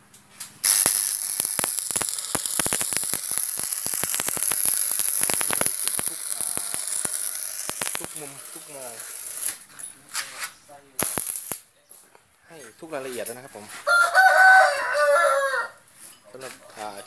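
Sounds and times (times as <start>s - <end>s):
welding arc sizzling and crackling: 0.6s - 9.7s, 11.0s - 11.7s.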